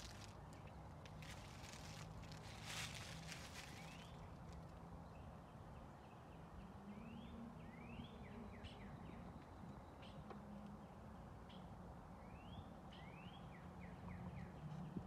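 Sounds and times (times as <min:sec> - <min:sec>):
low steady hum: 0:00.0 - 0:13.5.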